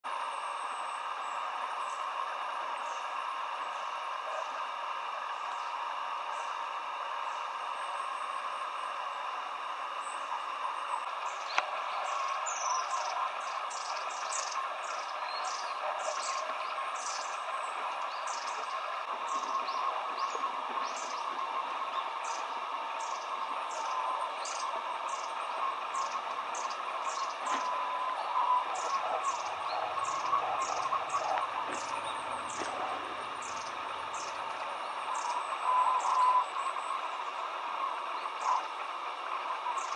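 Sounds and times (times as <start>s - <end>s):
high-pitched bird calls: 11.0s - 38.8s.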